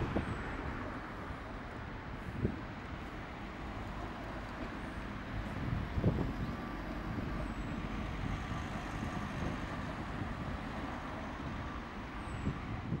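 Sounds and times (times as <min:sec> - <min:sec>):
street traffic rumble: 0:00.0 - 0:13.0.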